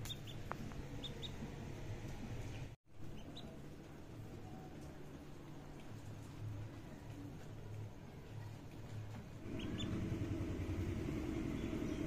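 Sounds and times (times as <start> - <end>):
duckling peeping: 0.0 - 1.5, 9.5 - 10.1
steady low hum: 9.4 - 12.0.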